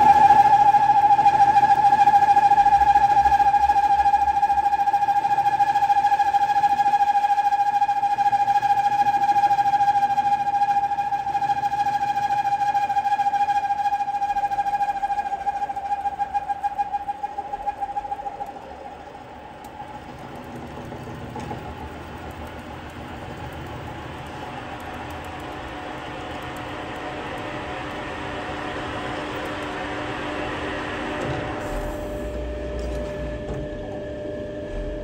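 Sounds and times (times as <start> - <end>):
pulsing high-pitched tool squeal: 0.0 - 21.9.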